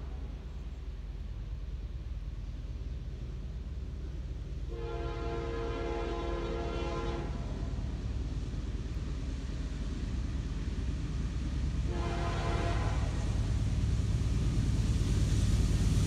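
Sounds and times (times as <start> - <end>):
low engine and rail rumble: 0.0 - 16.0
locomotive air horn blasts: 4.7 - 7.6, 11.9 - 13.4.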